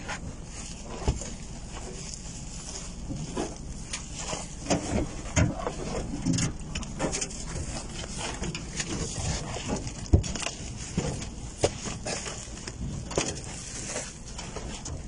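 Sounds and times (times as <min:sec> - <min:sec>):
plastic wrapping rustling: 0:00.0 - 0:15.0.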